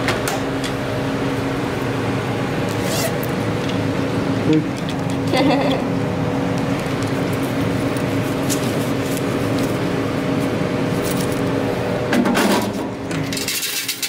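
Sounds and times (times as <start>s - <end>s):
low machine hum: 0.0s - 14.0s
cash clicking and rustling: 11.0s - 11.5s.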